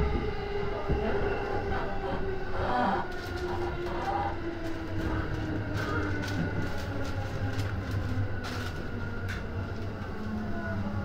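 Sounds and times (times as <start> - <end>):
faint train whine: 0.0 - 11.0
train low rumble: 0.0 - 11.0
wheels clacking on track: 3.0 - 10.4.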